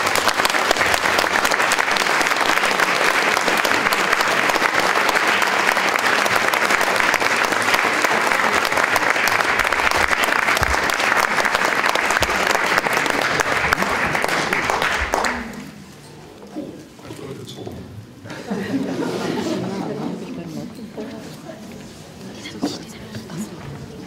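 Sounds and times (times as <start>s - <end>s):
audience applauding: 0.0s - 15.8s.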